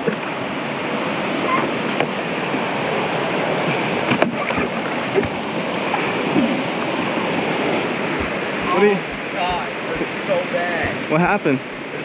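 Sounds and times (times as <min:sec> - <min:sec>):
flowing water: 0:00.0 - 0:12.0.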